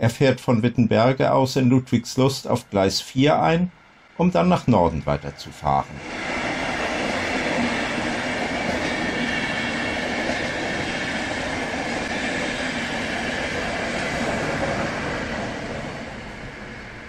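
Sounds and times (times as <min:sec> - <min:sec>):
train wheels running on rails: 0:05.9 - 0:17.0.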